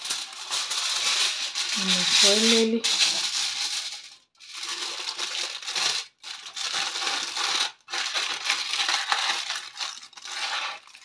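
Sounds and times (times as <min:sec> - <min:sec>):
kitchen foil crinkling: 0:00.0 - 0:11.0.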